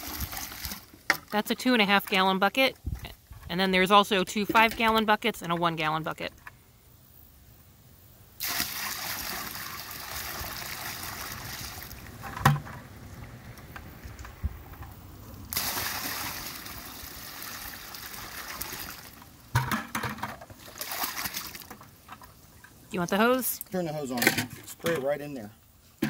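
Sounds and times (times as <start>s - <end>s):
water trickling: 8.4s - 12.2s, 15.5s - 19.5s
water splashing into plastic box: 15.5s - 22.3s.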